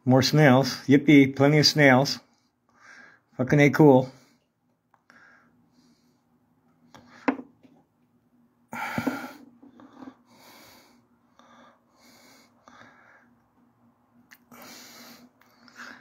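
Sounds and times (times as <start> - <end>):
man breathing heavily: 2.4 - 3.4, 5.1 - 6.4, 8.7 - 13.5, 14.4 - 16.0.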